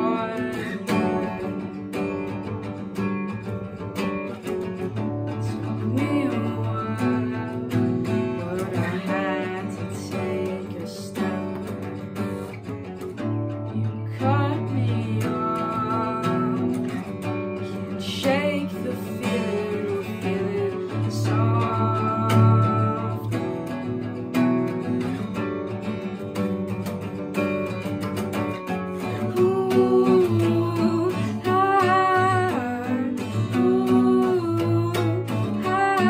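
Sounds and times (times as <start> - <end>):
young voice singing: 0.0 - 1.8, 5.5 - 11.8, 14.1 - 17.0, 17.9 - 23.4, 29.1 - 36.0
acoustic guitar strumming: 0.0 - 36.0.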